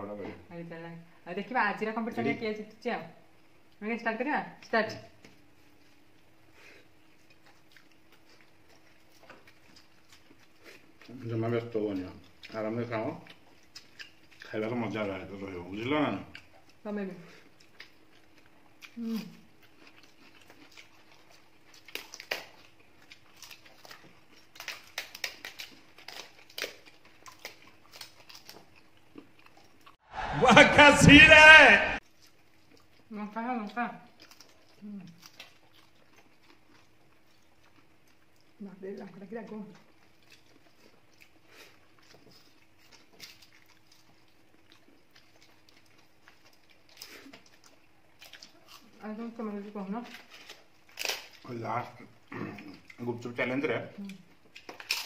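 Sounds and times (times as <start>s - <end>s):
soft chewing: 4.5s - 30.0s, 32.0s - 55.0s
poppadoms snapping and crunching: 23.3s - 28.6s, 50.3s - 51.5s, 54.6s - 55.0s.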